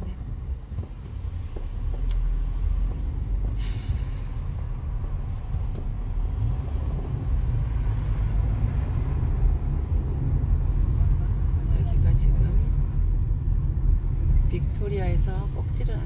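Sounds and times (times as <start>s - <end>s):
car interior rumble: 0.0s - 16.0s
brief hiss: 3.6s - 4.6s.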